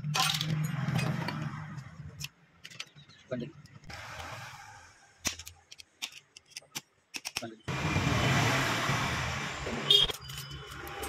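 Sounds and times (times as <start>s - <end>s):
small metal parts clicking: 0.0s - 1.4s, 5.2s - 7.6s.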